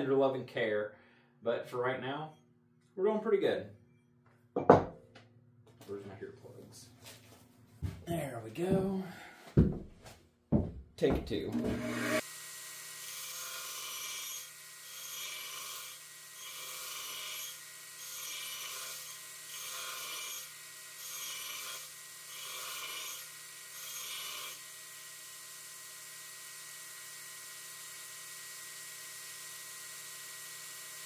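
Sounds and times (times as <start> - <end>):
grinder motor hum: 11.2 - 31.0
belt grinder grinding metal: 11.5 - 31.0.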